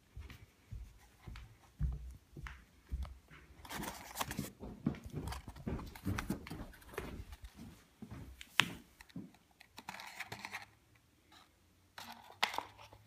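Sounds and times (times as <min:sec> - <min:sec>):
handling taps and rustles: 0:01.2 - 0:10.6.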